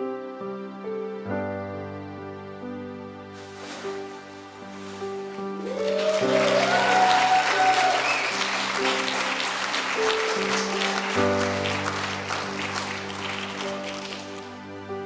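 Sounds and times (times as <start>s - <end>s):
soft instrumental music: 0.0s - 15.0s
congregation applauding: 5.5s - 14.8s
person whooping: 5.6s - 8.7s.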